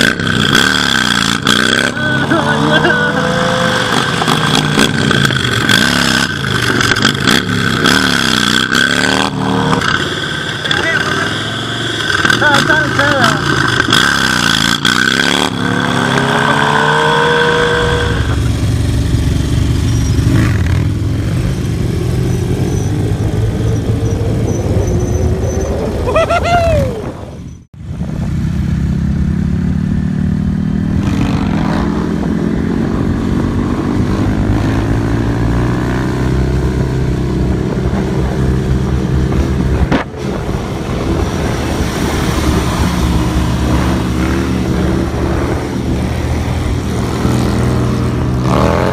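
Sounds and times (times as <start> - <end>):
motorcycle engine revving: 0.0 - 26.4, 27.5 - 48.9
motorcycle engine running steadily: 12.0 - 14.0, 18.2 - 24.2.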